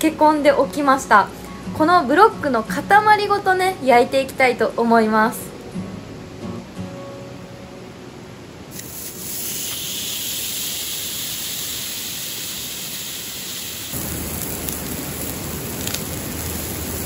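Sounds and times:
meat sizzling on hot griddle: 0:08.7 - 0:17.0
wood fire crackling: 0:08.7 - 0:17.0.

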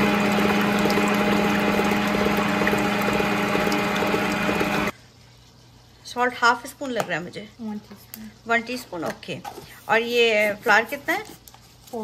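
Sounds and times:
electric mixer motor humming: 0:00.0 - 0:04.9.

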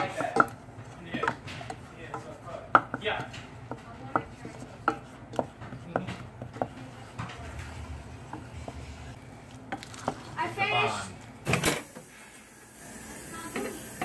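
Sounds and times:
wooden spoon tapping saucepan: 0:00.0 - 0:08.5.

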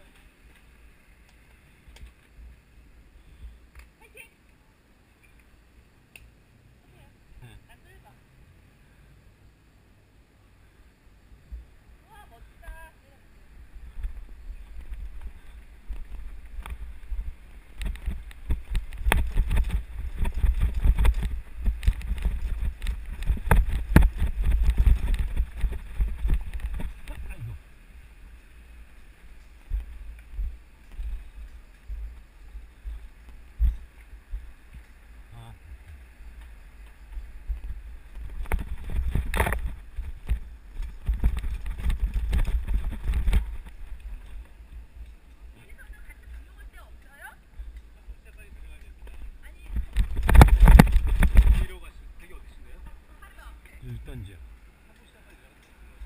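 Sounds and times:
wind rumbling on microphone: 0:12.6 - 0:54.8
bike rattling over bumps: 0:13.8 - 0:35.0, 0:35.8 - 0:46.6, 0:48.2 - 0:53.5
bicycle rattling down steps: 0:14.6 - 0:27.4.

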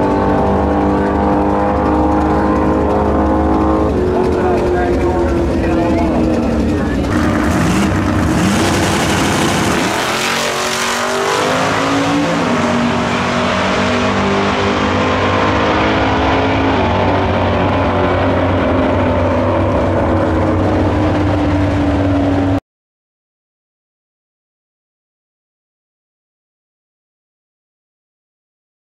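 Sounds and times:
drag racing cars accelerating: 0:00.0 - 0:22.6.

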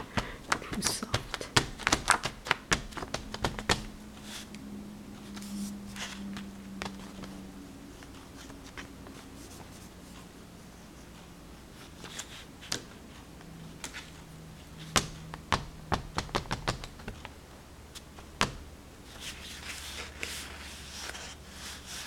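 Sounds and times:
oil pastel tapping on paper: 0:00.0 - 0:04.0, 0:14.8 - 0:17.2
low steady hum: 0:00.0 - 0:22.0
faint scratching: 0:05.2 - 0:11.2.

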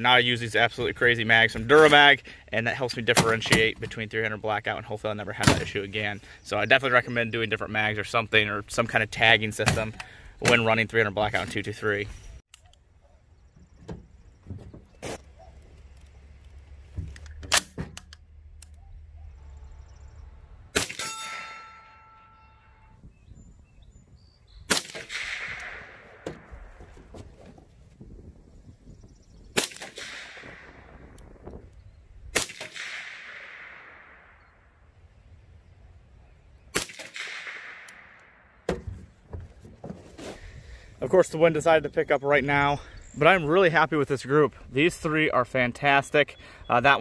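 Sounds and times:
suppressed rifle shots with echo: 0:24.7 - 0:26.5, 0:29.6 - 0:31.2, 0:32.3 - 0:34.6, 0:36.7 - 0:38.6.

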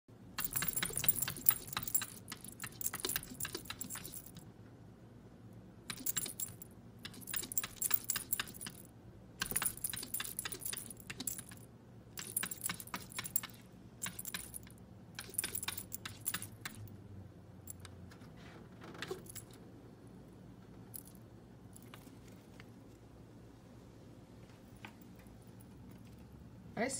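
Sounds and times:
metal collar tags jingling: 0:00.4 - 0:04.4, 0:05.9 - 0:16.9, 0:19.1 - 0:19.6, 0:20.9 - 0:22.1.

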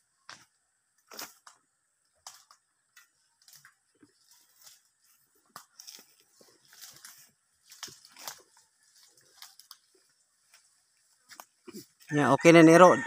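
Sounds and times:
footsteps through dry brush: 0:03.1 - 0:12.2.

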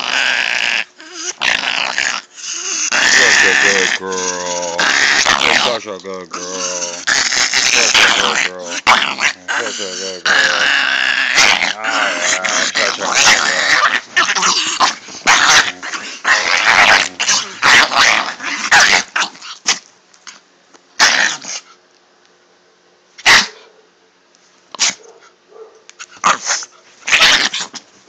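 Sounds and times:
dog play-growling: 0:00.0 - 0:20.4, 0:21.0 - 0:21.8, 0:26.0 - 0:27.9
dog barking: 0:23.2 - 0:23.9, 0:24.8 - 0:25.9.

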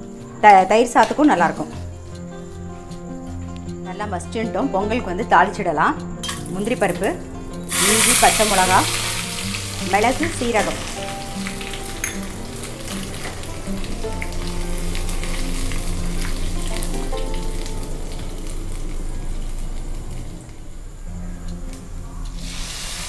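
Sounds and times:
soft background music: 0:00.0 - 0:23.0
spices sizzling in oil: 0:06.2 - 0:20.6, 0:22.3 - 0:23.0.

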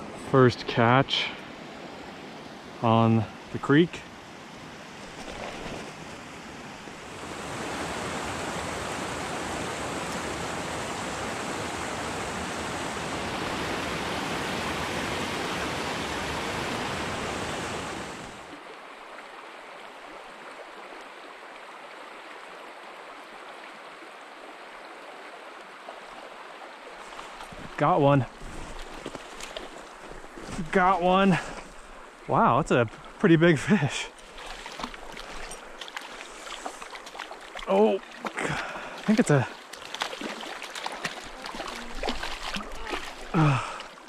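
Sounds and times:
creek water rushing: 0:00.0 - 0:44.0.

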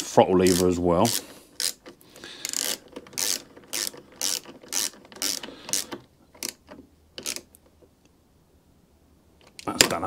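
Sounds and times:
ratchet wrench clicking: 0:00.5 - 0:01.8, 0:02.4 - 0:06.6, 0:07.2 - 0:07.4.

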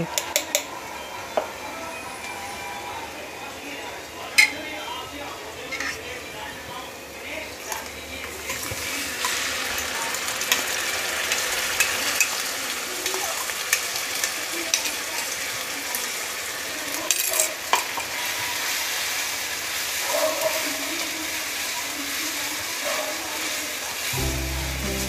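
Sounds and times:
spice paste sizzling in oil: 0:08.3 - 0:25.0.

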